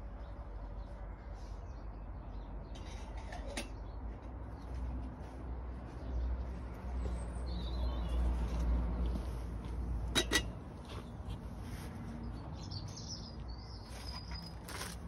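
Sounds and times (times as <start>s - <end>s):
metal kettle clinking on stone: 10.1s - 10.6s.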